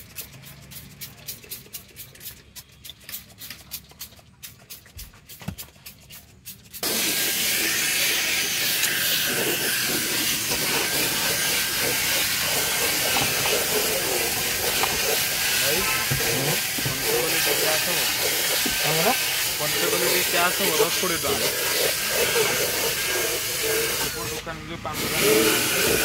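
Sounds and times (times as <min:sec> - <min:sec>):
spray bottle squirting: 0:00.0 - 0:24.3
brush scrubbing seat: 0:00.0 - 0:24.4, 0:25.0 - 0:26.0
cordless drill running: 0:25.0 - 0:26.0.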